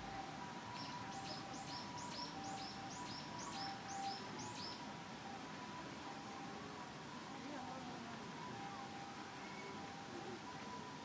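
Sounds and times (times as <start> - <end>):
bird chirping: 0.7 - 4.8.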